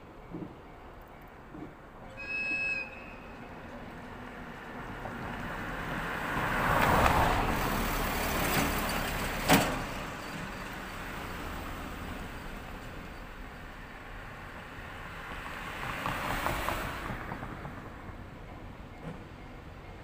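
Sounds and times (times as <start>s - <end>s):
car passing: 4.4s - 10.2s, 14.4s - 18.2s.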